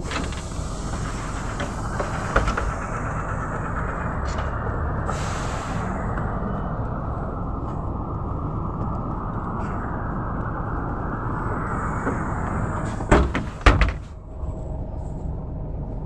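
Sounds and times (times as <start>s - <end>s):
bus doors closing knocks: 0.0s - 3.0s, 12.0s - 14.1s
bus diesel engine idling: 0.0s - 16.0s.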